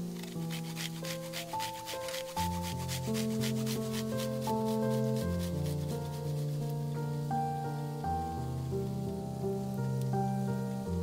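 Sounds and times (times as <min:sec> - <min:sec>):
background music of held chords: 0:00.0 - 0:11.0
garlic rasping on metal grater: 0:00.2 - 0:06.6.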